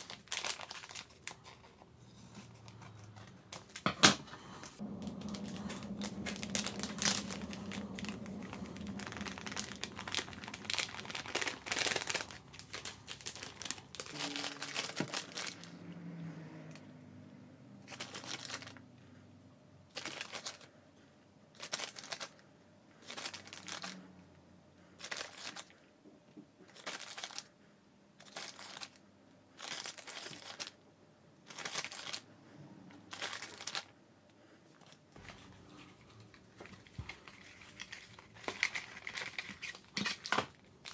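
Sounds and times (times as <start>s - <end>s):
plastic bag crinkling: 0.0s - 3.9s, 4.7s - 15.9s, 17.8s - 18.8s, 19.9s - 20.7s, 21.6s - 22.4s, 23.0s - 24.1s, 25.0s - 25.8s, 26.7s - 27.5s, 28.2s - 29.0s, 29.6s - 30.8s, 31.4s - 32.3s, 33.0s - 34.0s, 34.8s - 40.9s.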